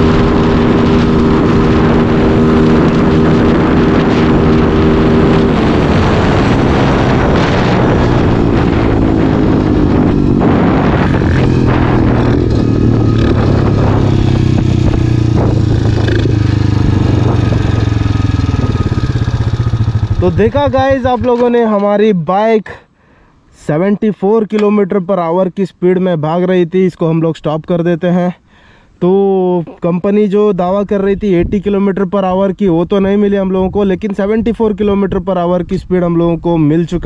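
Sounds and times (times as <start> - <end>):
dirt bike engine revving: 0.0 - 21.5.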